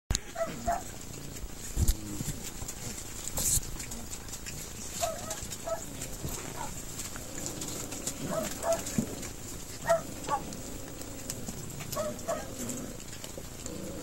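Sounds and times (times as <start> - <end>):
puppy yipping: 0.4 - 0.9, 5.0 - 5.9, 8.2 - 8.9, 9.8 - 10.5.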